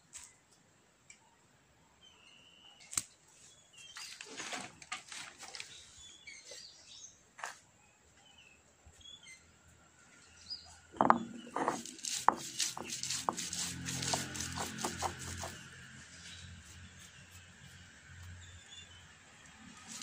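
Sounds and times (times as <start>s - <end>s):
faint bird chirps: 1.1s - 4.3s
stone roller crushing lentils: 11.0s - 15.8s
stone scraping on stone: 11.0s - 15.8s.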